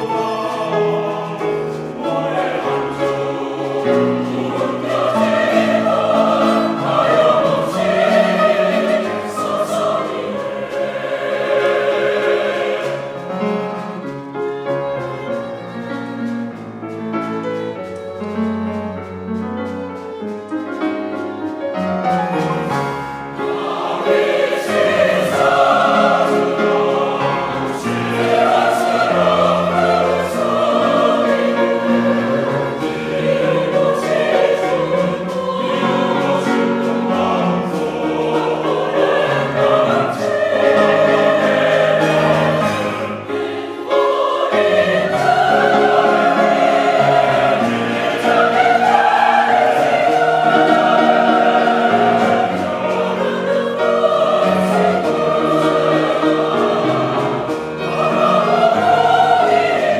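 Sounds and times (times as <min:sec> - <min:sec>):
mixed choir singing: 0:00.0 - 0:16.5, 0:20.0 - 0:59.9
instrumental accompaniment: 0:00.0 - 0:59.9.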